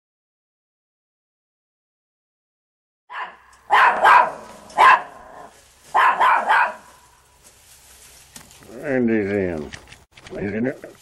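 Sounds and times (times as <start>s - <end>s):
dog barking: 3.1s - 7.0s.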